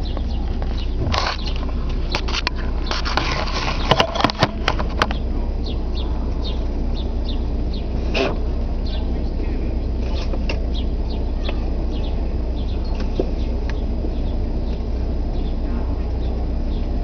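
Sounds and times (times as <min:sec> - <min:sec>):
birds chirping: 0:00.0 - 0:17.0
car engine idling: 0:00.0 - 0:17.0
sharp clicks and scrapes: 0:00.5 - 0:05.2.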